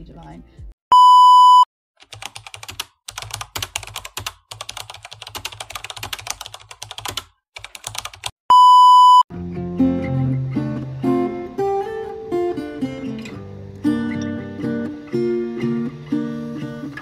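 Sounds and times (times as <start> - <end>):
high test-tone beep: 0.9 - 1.7, 8.5 - 9.2.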